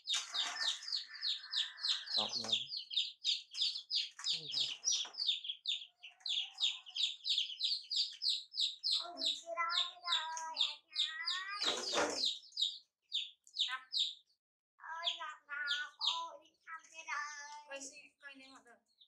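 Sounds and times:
chicks peeping: 0.0s - 19.0s
high voice calling out: 9.0s - 12.2s, 14.8s - 16.4s.

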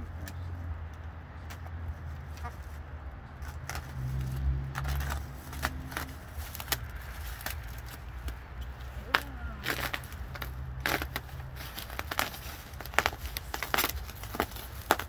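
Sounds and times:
steady low rumble: 0.0s - 15.0s
bubble wrap crackling: 3.6s - 15.0s.

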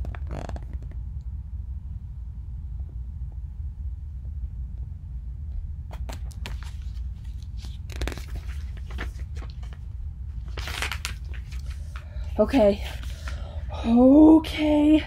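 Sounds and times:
steady low hum: 0.0s - 15.0s
paper pages rustling: 5.9s - 13.5s.

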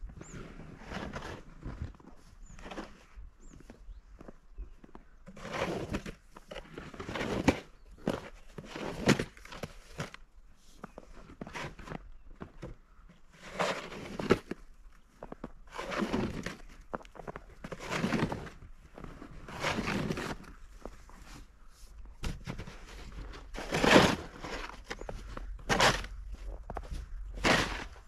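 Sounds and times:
snow shovel scraping snow: 0.2s - 1.9s, 5.3s - 10.0s, 13.3s - 14.6s, 15.7s - 16.7s, 17.6s - 21.5s, 22.2s - 26.2s, 27.4s - 28.0s.

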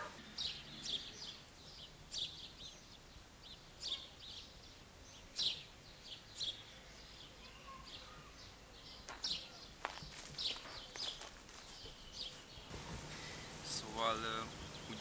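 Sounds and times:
small birds chirping: 0.0s - 15.0s
faint steady hiss: 12.5s - 15.0s.

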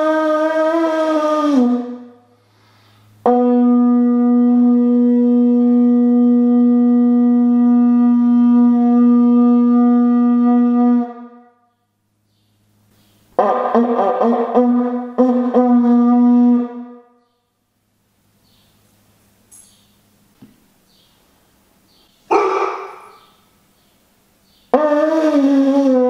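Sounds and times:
conch shell horn note: 0.0s - 11.6s, 13.4s - 17.2s, 24.7s - 26.0s.

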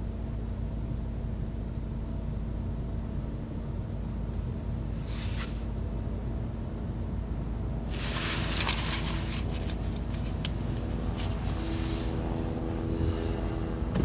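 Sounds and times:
car engine idling: 0.0s - 14.0s
clothes and seatbelt rustling: 4.9s - 5.7s, 7.9s - 14.0s.

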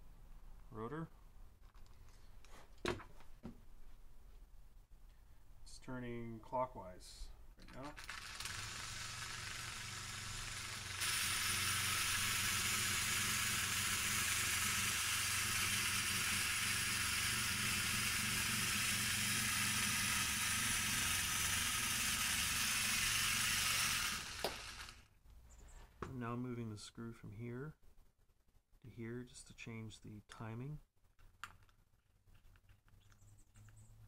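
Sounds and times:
small electric motor humming: 7.9s - 25.1s.

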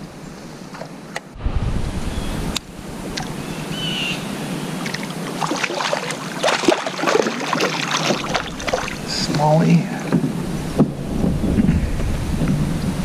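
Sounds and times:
wind on microphone: 1.3s - 13.0s
water splashing against kayak: 3.0s - 13.0s.

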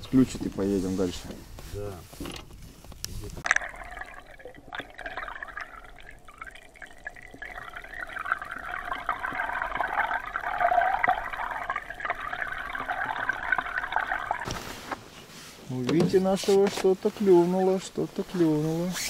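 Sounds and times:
steady hum: 3.4s - 14.9s
underwater water rushing: 3.4s - 15.0s.

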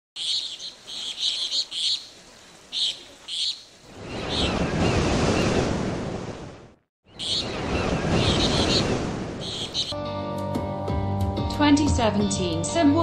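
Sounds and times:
high bird chirps: 0.2s - 2.1s, 2.7s - 5.5s, 7.0s - 10.0s
rushing surf-like noise: 7.3s - 9.9s.

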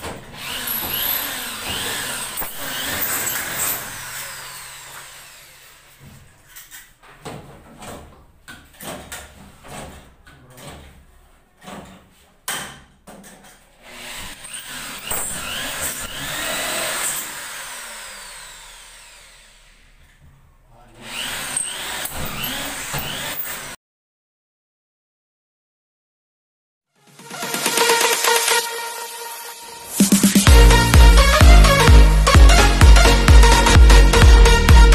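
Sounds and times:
electric drill driving screws: 0.3s - 6.0s, 13.8s - 20.1s, 21.0s - 23.8s.

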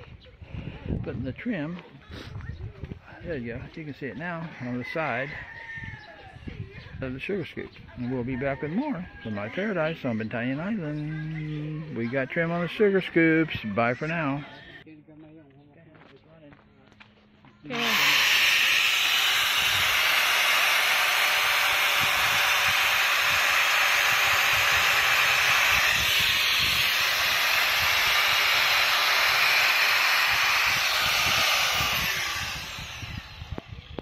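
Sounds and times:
angle grinder sanding: 17.7s - 34.0s.

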